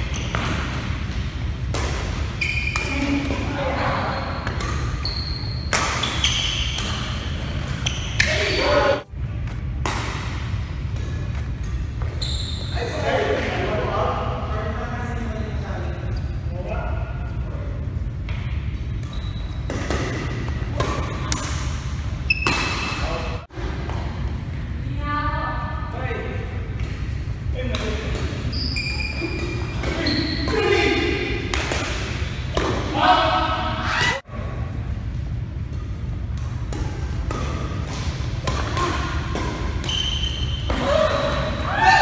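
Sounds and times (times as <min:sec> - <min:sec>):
shoe squeak: 0:00.0 - 0:00.6, 0:02.3 - 0:03.0, 0:04.0 - 0:08.7, 0:12.1 - 0:13.0, 0:19.0 - 0:19.7, 0:22.3 - 0:23.2, 0:28.4 - 0:30.6, 0:39.8 - 0:41.6
low hum of hall: 0:00.0 - 0:42.0
rackets hitting shuttlecock: 0:00.1 - 0:03.6, 0:04.4 - 0:08.6, 0:09.4 - 0:12.2, 0:18.4 - 0:23.1, 0:26.8 - 0:33.0, 0:35.7 - 0:41.6
steady low rumble: 0:09.0 - 0:12.0, 0:33.6 - 0:39.8.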